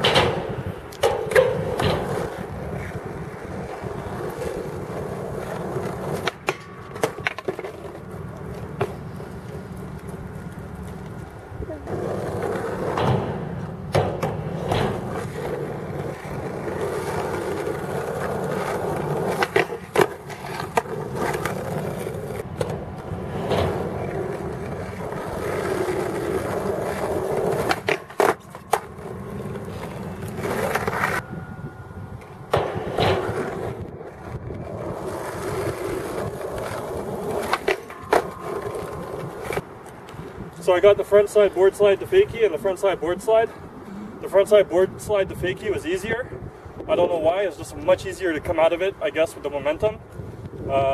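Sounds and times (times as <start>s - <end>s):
skateboard popping and landing: 0.0s - 31.2s, 32.4s - 40.1s
skateboard scraping along rail: 0.0s - 50.8s
skateboard wheels rolling on concrete: 0.0s - 50.9s.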